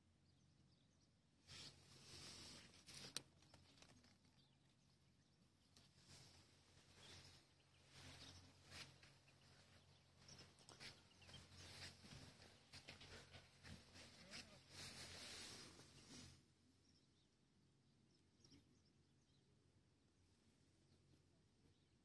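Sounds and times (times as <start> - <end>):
handling rustling and crackling: 1.6 - 4.5.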